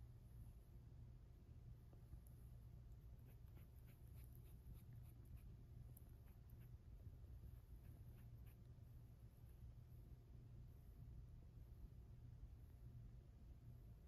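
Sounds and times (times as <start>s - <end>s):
low room hum: 0.0s - 14.0s
scratchy ticks of stroking fur: 3.1s - 6.8s, 7.4s - 8.8s.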